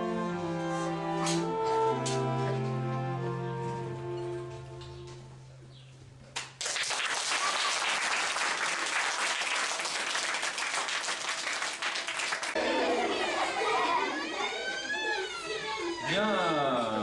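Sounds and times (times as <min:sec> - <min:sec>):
audience applause: 0:06.6 - 0:14.7.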